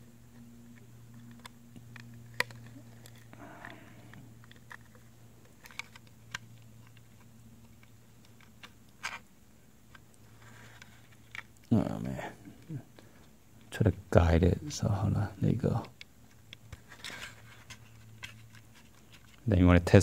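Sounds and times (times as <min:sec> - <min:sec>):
small parts clicking: 0:00.3 - 0:09.2.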